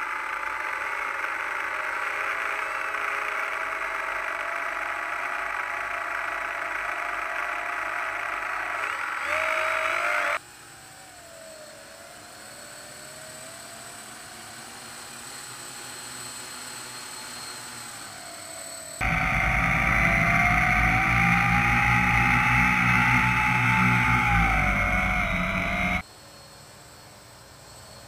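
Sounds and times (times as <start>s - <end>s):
drone motors whining: 0.0s - 14.2s, 18.1s - 26.0s.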